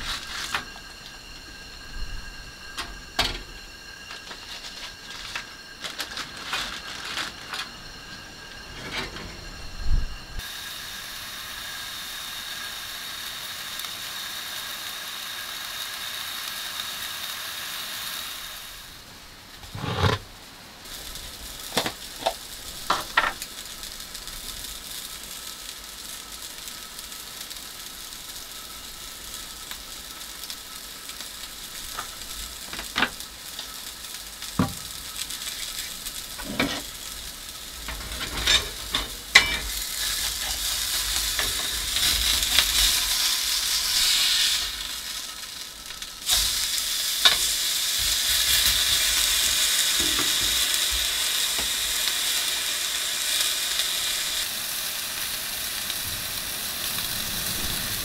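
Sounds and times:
food sizzling in a pan: 0:00.0 - 0:58.0
utensils clinking: 0:35.4 - 0:37.0, 0:37.8 - 0:42.7.

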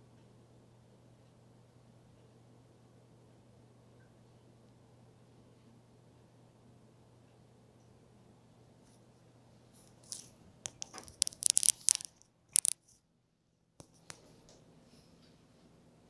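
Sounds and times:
faint low hum: 0:00.0 - 0:16.0.

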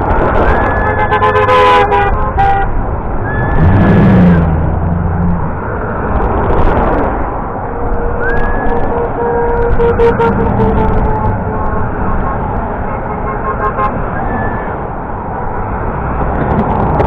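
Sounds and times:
traffic noise: 0:00.0 - 0:17.0
car horns honking: 0:00.6 - 0:03.6, 0:07.7 - 0:14.8
deep low horn: 0:07.7 - 0:13.2.

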